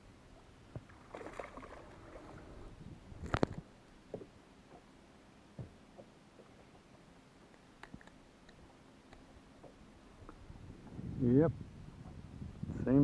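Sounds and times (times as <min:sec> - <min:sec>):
water splashing: 0:00.8 - 0:02.8.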